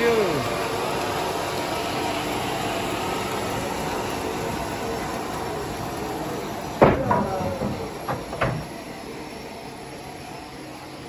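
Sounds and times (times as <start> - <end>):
sawmill machinery hum: 0.0 - 11.0
timber knocks: 6.8 - 8.9.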